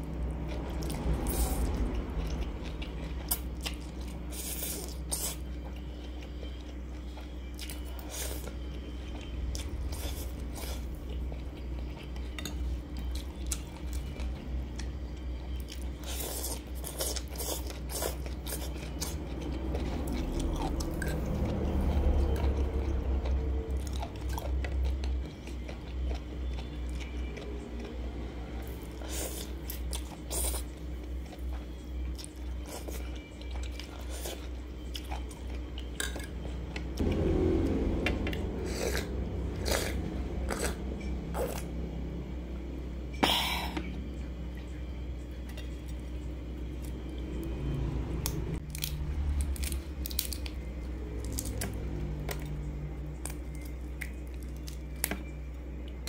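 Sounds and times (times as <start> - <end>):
person slurping and chewing noodles: 0.7 - 27.9, 28.6 - 36.2, 38.3 - 41.7.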